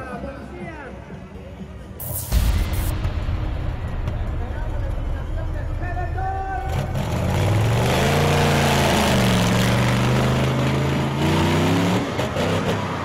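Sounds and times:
monster truck engine revving: 6.6s - 13.0s.

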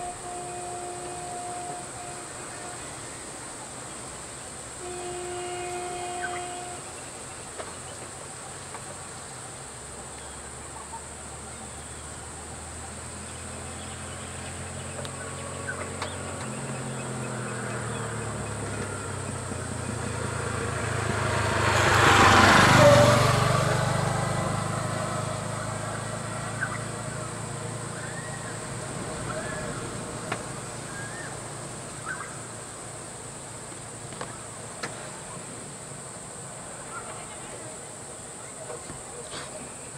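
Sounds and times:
vehicle engine passing by: 11.0s - 34.0s.

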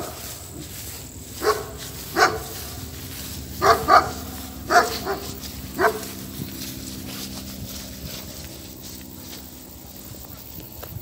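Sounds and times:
dog barking: 1.4s - 2.9s, 3.5s - 6.3s.

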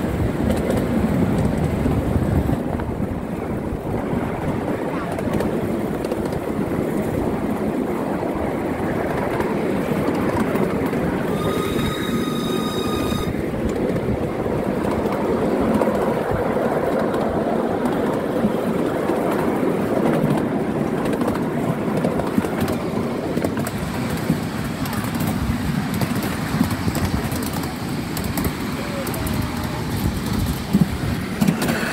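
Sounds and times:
train wheels rumbling on rails: 0.0s - 31.9s
high-pitched train whistle: 11.3s - 13.4s.

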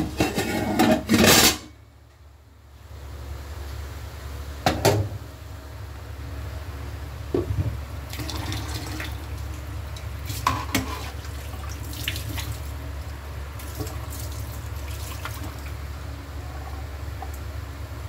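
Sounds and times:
steady low hum: 0.0s - 18.0s
water boiling and bubbling: 8.0s - 17.5s.

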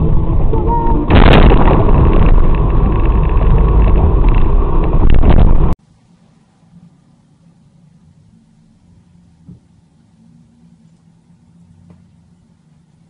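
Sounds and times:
loud distorted noise: 0.0s - 5.8s
vehicle crash: 0.0s - 5.8s.

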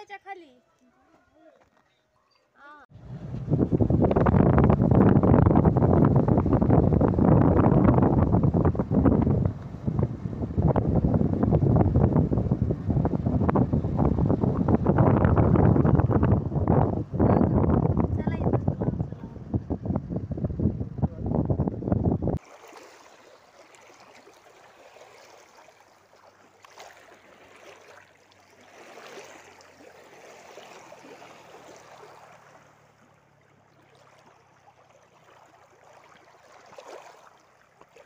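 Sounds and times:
wind buffeting microphone: 3.0s - 22.4s
water lapping over stones: 22.4s - 38.0s.

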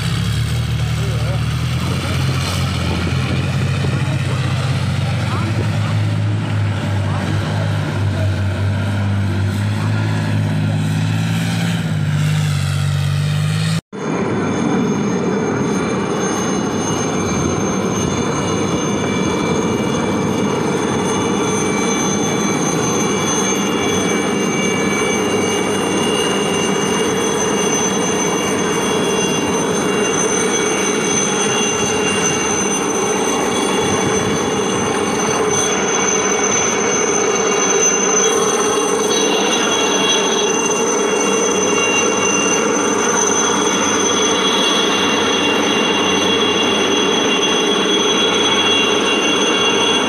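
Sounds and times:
helicopter turbine whine and rotor: 0.0s - 50.0s
tracked vehicle engine hum: 0.0s - 50.0s.

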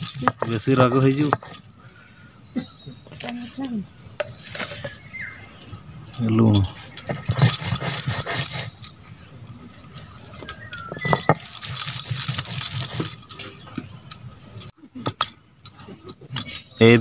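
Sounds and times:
stone roller scraping grinding stone: 0.0s - 1.8s, 3.1s - 5.0s, 6.2s - 14.7s
bangles clinking: 0.0s - 2.8s, 6.8s - 16.8s.

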